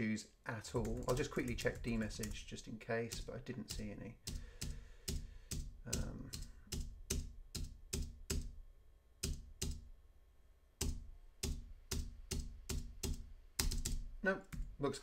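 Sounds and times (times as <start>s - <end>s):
typing on computer keyboard: 0.8s - 2.4s, 3.1s - 8.5s, 10.8s - 14.6s.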